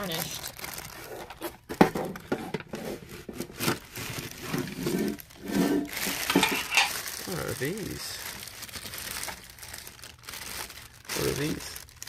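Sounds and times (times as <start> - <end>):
plastic bag rustling: 0.0 - 12.0
metal tin knocking and clattering: 4.5 - 7.0.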